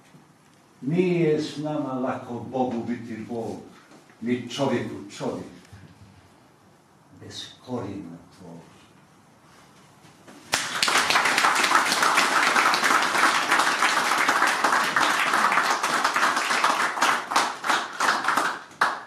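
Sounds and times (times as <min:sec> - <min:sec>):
audience clapping: 0:10.5 - 0:19.0.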